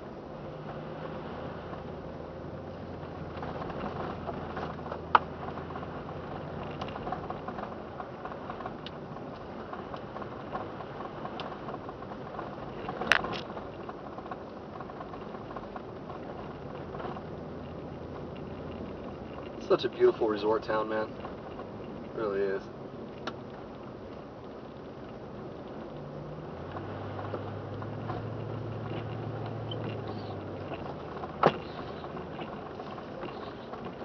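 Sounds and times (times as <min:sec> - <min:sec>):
car tyres and engine rumble: 0:00.0 - 0:34.0.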